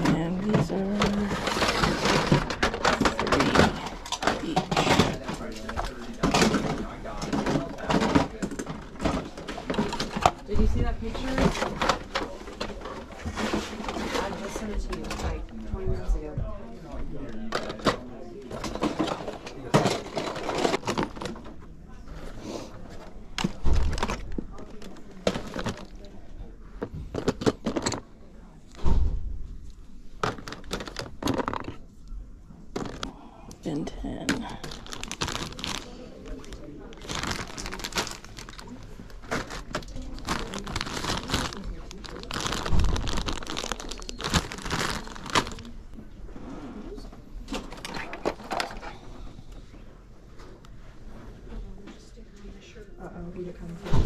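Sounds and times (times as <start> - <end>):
plastic toys clattering: 0.0 - 15.5, 17.3 - 22.3, 22.9 - 26.2, 26.8 - 28.2, 30.2 - 31.9, 32.7 - 33.1, 33.7 - 45.8, 46.9 - 49.1
plastic bag crinkling: 34.0 - 45.8.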